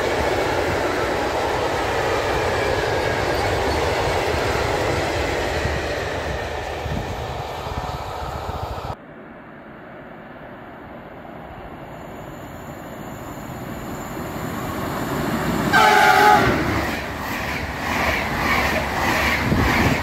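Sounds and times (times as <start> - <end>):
train rumbling: 0.0 - 20.0
train horn blast: 15.7 - 16.8.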